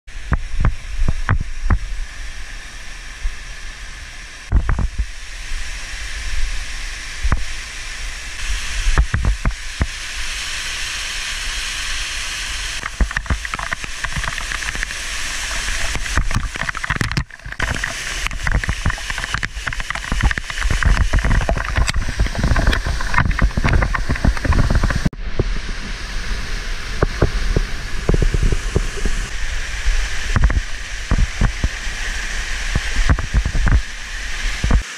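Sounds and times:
waterfall rushing: 8.4 - 34.9.

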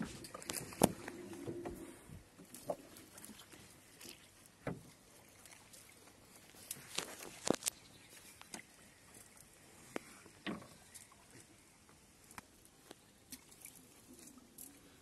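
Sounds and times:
cast net rustling and clicking: 0.0 - 1.8, 6.5 - 8.7.

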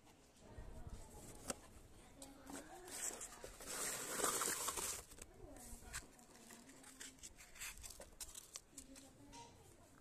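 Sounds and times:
rustling: 2.4 - 9.2.

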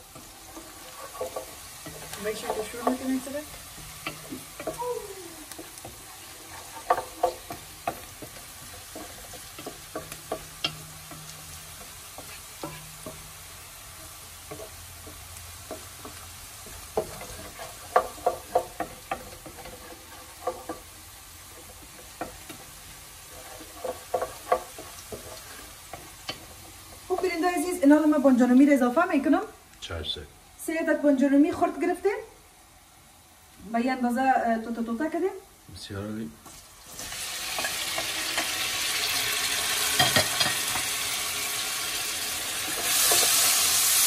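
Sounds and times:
onions sizzling in oil: 0.0 - 44.0
wooden spoon scraping pot: 0.1 - 4.8, 5.5 - 13.2, 14.0 - 20.9, 21.5 - 27.3.

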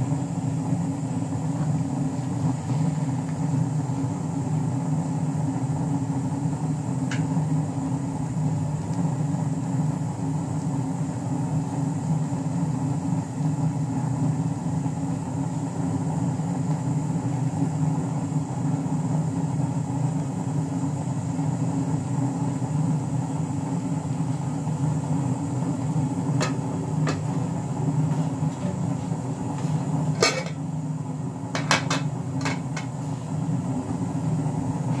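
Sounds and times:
low rumbling hum: 25.0 - 35.0
metal pot set down on stove: 30.2 - 30.6.

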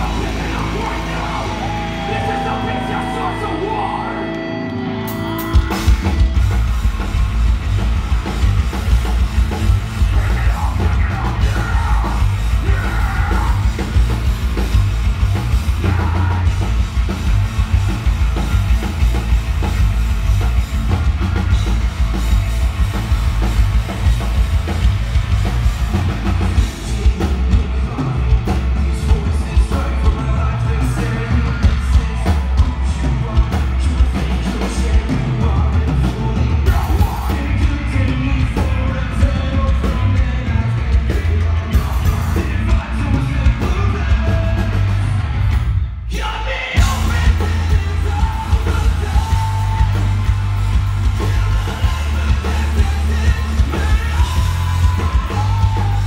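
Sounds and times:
pounding drum kit: 0.0 - 4.1, 5.0 - 56.0
shouted and sung vocals: 0.0 - 4.8, 9.9 - 14.3, 15.4 - 17.1, 26.6 - 56.0
heavy rock band playing: 0.0 - 56.0.

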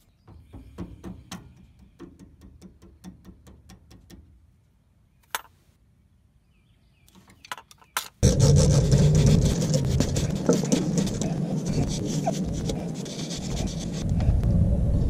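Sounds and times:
rough scrubbing noise: 8.2 - 14.3
steady low hum: 8.2 - 15.0.

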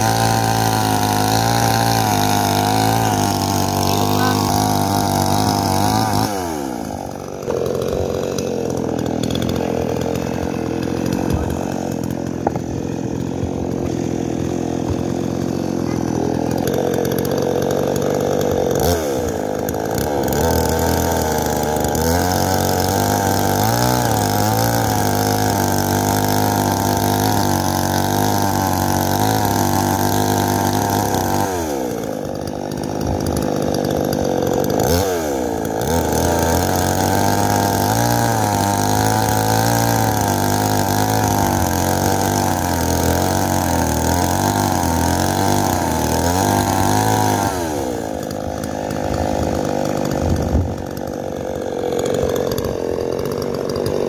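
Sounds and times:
chainsaw cutting logs: 0.0 - 54.0.

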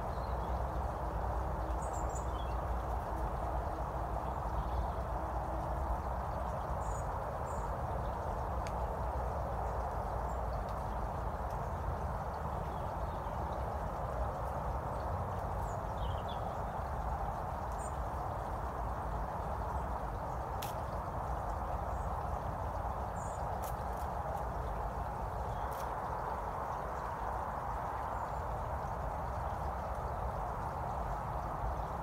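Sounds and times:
constant rushing noise: 0.0 - 32.0
small birds chirping: 0.0 - 32.0.

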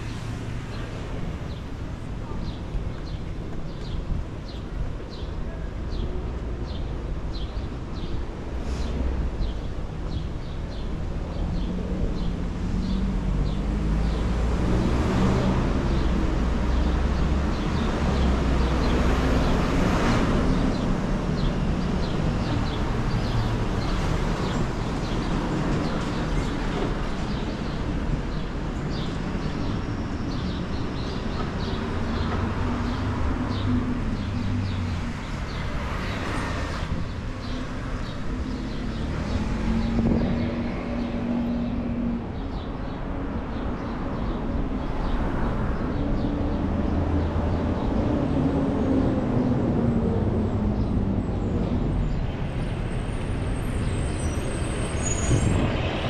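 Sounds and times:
vehicle engines rumbling: 0.0 - 56.0
cars passing close by: 11.3 - 56.0.

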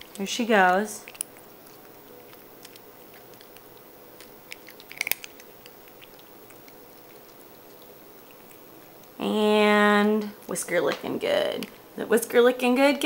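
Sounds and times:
cat crunching dry treats: 0.0 - 9.2.

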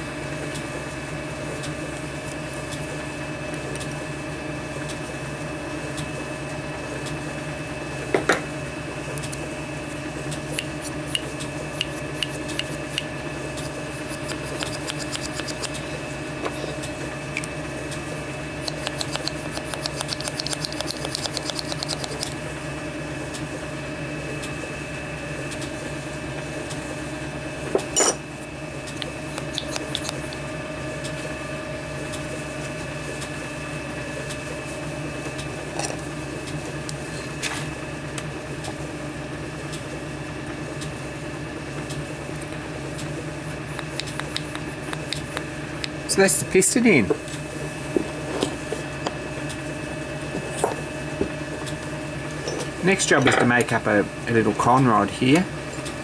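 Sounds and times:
steady machine hum: 0.0 - 56.0.

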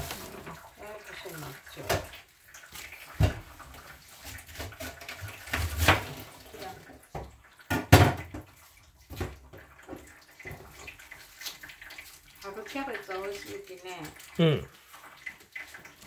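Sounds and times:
water splashing in a sink: 0.0 - 16.0
dishes knocking and clattering: 3.2 - 3.6, 7.1 - 10.8.

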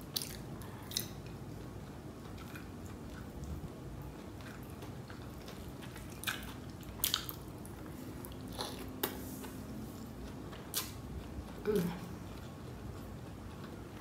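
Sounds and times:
close chewing: 0.1 - 14.0
wet mouth smacks: 10.7 - 11.0.

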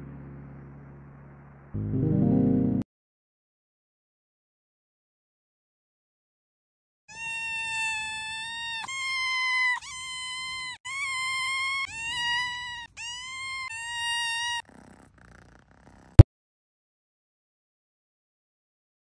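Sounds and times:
cat meowing: 7.1 - 16.2.

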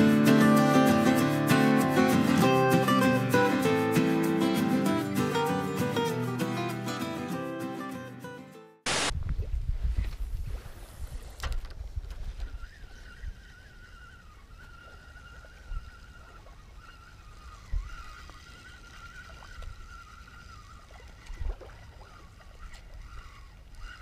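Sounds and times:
wind on microphone: 8.9 - 24.0
fishing reel whirring: 12.5 - 24.0.

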